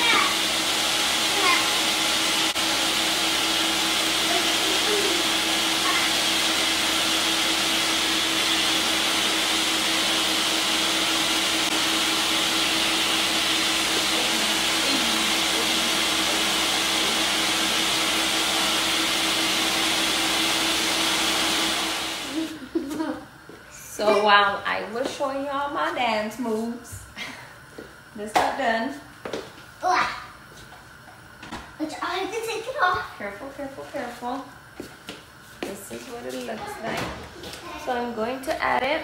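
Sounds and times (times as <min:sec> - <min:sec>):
blender running at high speed: 0:00.0 - 0:22.8.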